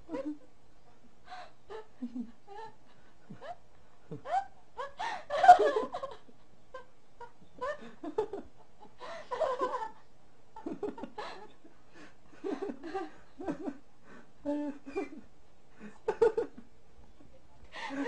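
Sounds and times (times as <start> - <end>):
people laughing and giggling: 1.7 - 10.0, 10.6 - 13.8.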